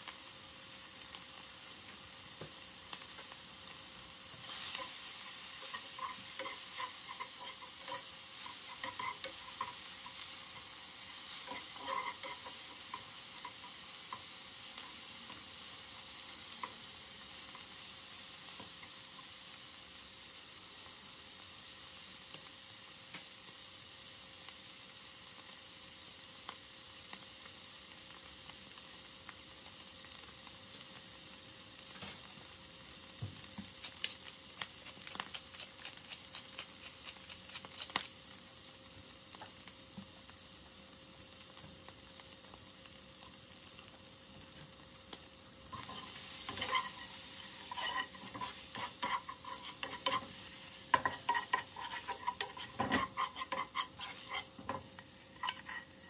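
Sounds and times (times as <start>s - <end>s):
bacon sizzling in a frying pan: 0.0s - 56.0s
spatula scraping a pan: 4.3s - 17.6s, 33.7s - 38.1s, 45.7s - 56.0s.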